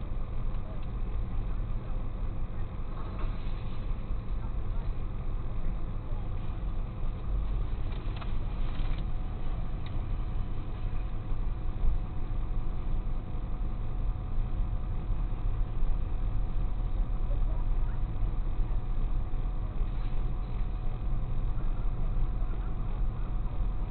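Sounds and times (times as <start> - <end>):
truck engine idling: 0.0 - 23.9.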